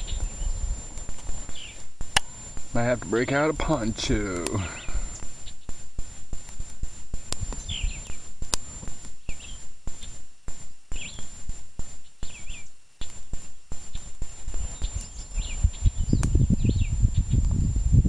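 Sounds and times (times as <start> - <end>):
bird chirping: 0.0 - 0.8, 1.4 - 1.9, 2.8 - 5.7, 7.5 - 8.3, 9.2 - 10.2, 10.9 - 11.3, 12.0 - 13.2, 13.9 - 17.4
gusty wind on microphone: 0.0 - 1.7, 7.2 - 8.8, 14.1 - 18.0
campfire crackling and popping: 0.0 - 16.6.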